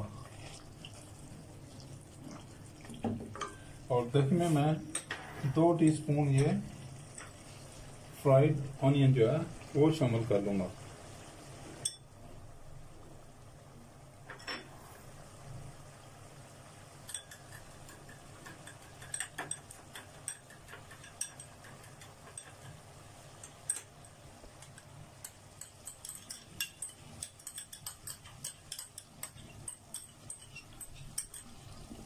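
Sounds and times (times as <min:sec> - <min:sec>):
low steady hum: 0:00.0 - 0:32.0
metal spoon clinking on glass bowl: 0:17.1 - 0:22.8, 0:23.4 - 0:31.6.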